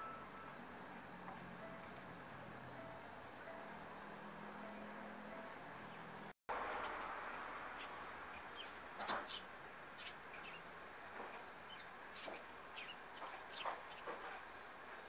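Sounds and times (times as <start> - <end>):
sparrows chirping: 4.7 - 15.0.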